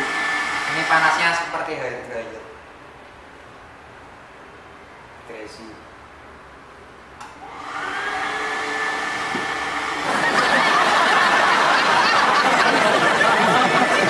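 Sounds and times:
hand dryer blowing: 0.0s - 1.8s, 7.4s - 14.0s.

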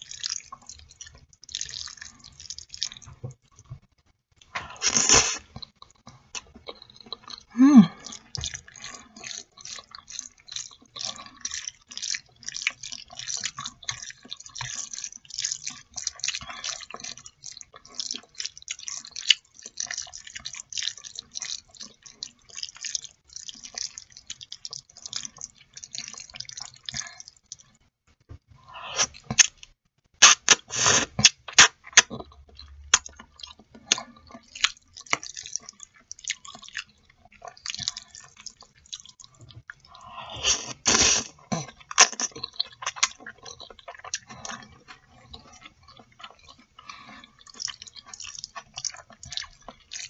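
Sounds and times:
wet chewing and lip-smacking: 0.0s - 3.7s, 4.4s - 27.8s, 28.9s - 50.0s
slurping noodles: 4.6s - 5.6s, 7.5s - 27.4s, 28.6s - 29.5s, 30.2s - 32.1s, 37.5s - 50.0s.

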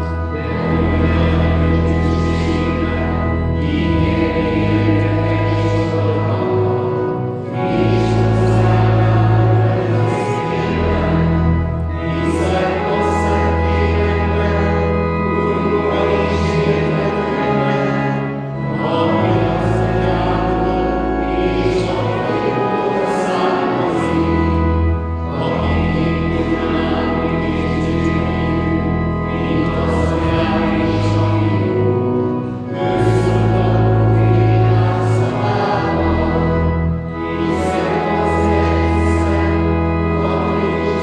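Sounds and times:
congregation singing a hymn: 0.0s - 41.0s
organ accompaniment: 0.0s - 41.0s.

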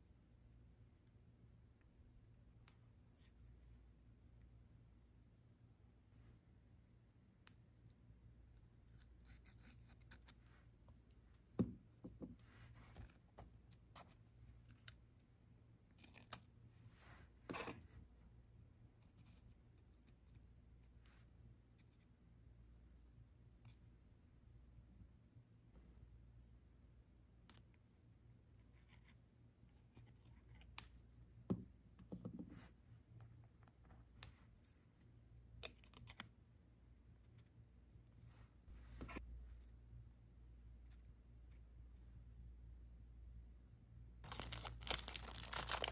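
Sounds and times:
soft knock on desk: 11.6s - 12.4s
paper rustle: 44.3s - 45.9s.

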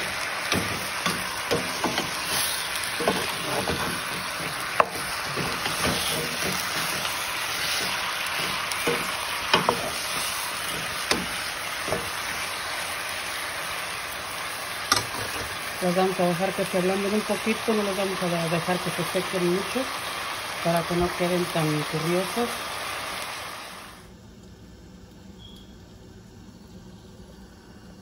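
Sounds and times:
spatula scraping and knocking pan: 0.0s - 12.4s, 14.9s - 15.6s
chicken sizzling in frying pan: 0.0s - 24.1s.

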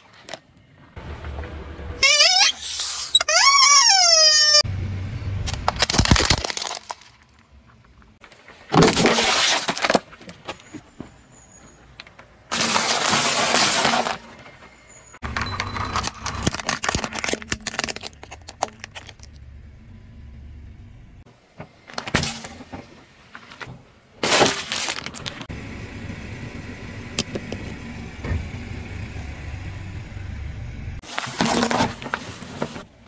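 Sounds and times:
cones crackling under tyre: 5.5s - 10.8s, 12.0s - 19.6s.

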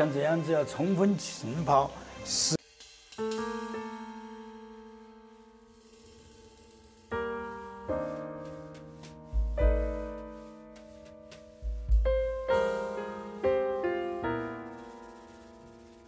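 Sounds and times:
slow piano music: 3.2s - 16.0s
deep piano bass notes: 8.0s - 15.0s.

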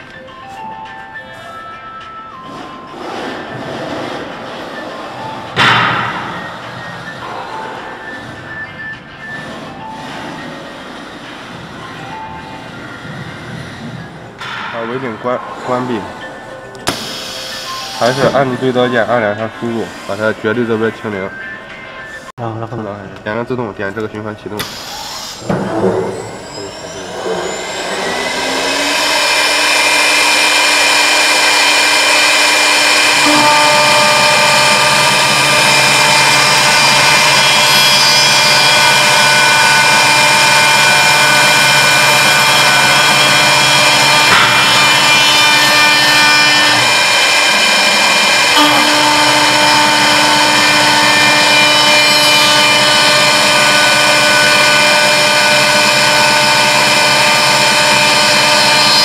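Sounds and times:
router spindle whine: 15.6s - 21.0s, 24.6s - 59.0s.

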